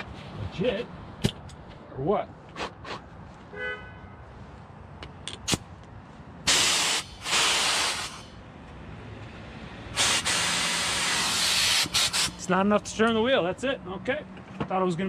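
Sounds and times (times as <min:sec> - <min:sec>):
pneumatic tool air hissing: 0:06.5 - 0:08.4, 0:09.9 - 0:12.5.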